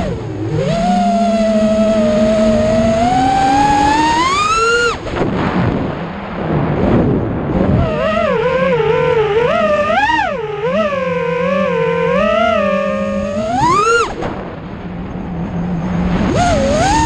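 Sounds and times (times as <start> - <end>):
drone motors whining: 0.0 - 5.2, 7.6 - 17.0
wind rushing: 5.0 - 8.1.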